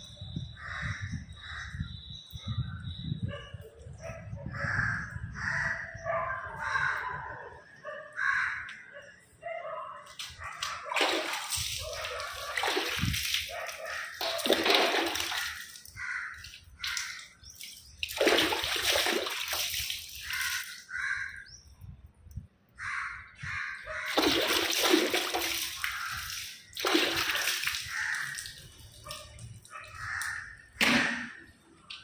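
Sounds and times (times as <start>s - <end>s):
water splashing and sloshing: 10.0s - 21.4s, 23.8s - 32.0s
water spattering onto floor: 10.2s - 21.0s, 24.1s - 31.4s.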